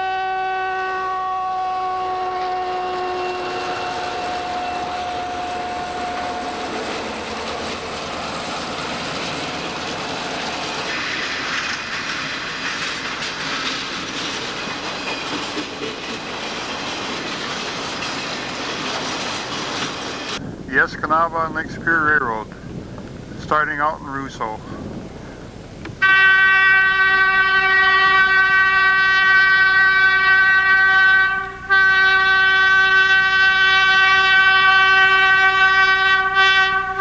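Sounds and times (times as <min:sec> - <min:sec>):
train horn chord: 0:00.0 - 0:07.2, 0:26.0 - 0:37.0
train snowplow rumbling: 0:00.0 - 0:37.0
rails clickety-clack: 0:03.6 - 0:20.5.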